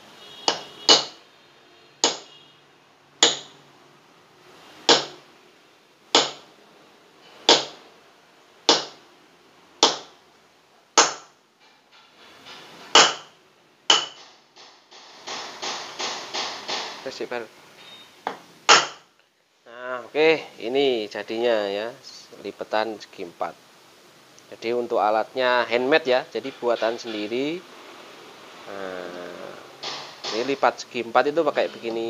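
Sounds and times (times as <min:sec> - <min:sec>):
hammer striking steel punch: 0:00.4 - 0:01.2, 0:02.0 - 0:02.3, 0:03.2 - 0:03.5, 0:04.9 - 0:05.2, 0:06.1 - 0:06.4, 0:07.5 - 0:07.8, 0:08.7 - 0:09.0, 0:09.8 - 0:10.1, 0:11.0 - 0:11.3, 0:12.9 - 0:13.3, 0:13.9 - 0:17.1, 0:18.3 - 0:19.0, 0:29.8 - 0:30.7.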